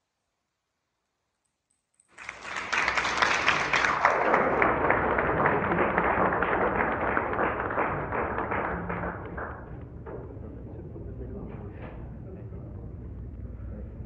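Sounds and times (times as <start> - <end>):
audience applause: 2.1 - 10.2.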